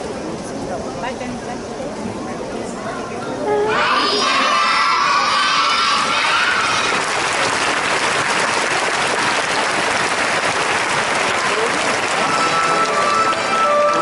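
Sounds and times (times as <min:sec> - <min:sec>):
music: 0:03.4 - 0:04.2, 0:12.0 - 0:14.0
crowd applauding: 0:04.4 - 0:14.0.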